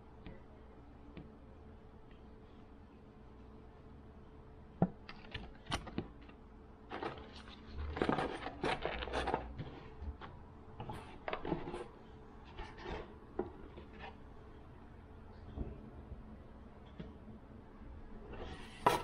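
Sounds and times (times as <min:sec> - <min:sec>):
hands handling packaging: 0:06.9 - 0:14.2.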